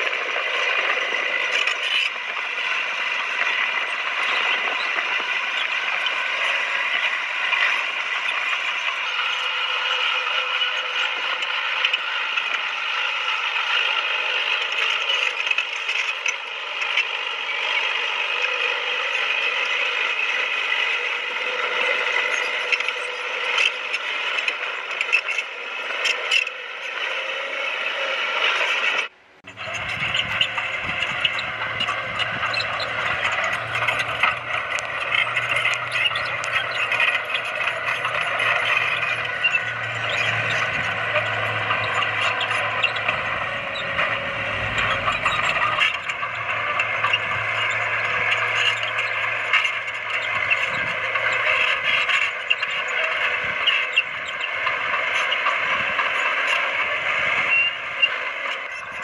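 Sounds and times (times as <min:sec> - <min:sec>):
steel tracks clattering and squealing: 0:00.0 - 0:59.0
diesel engine running: 0:29.2 - 0:59.0
low engine hum: 0:29.2 - 0:59.0.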